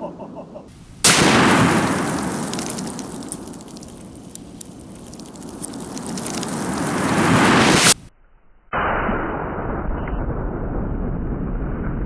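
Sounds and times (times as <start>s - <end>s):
rifle shot echoing: 1.0s - 2.0s.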